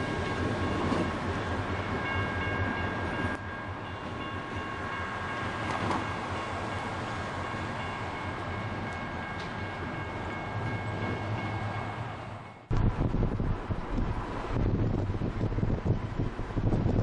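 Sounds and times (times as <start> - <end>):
crossing bell ringing: 0.0 - 12.7
diesel locomotive engine running: 0.0 - 17.0.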